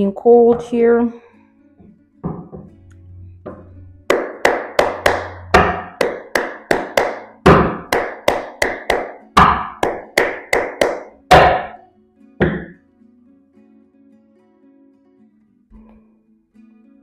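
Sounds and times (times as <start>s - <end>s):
sharp ringing knocks: 3.4s - 8.0s.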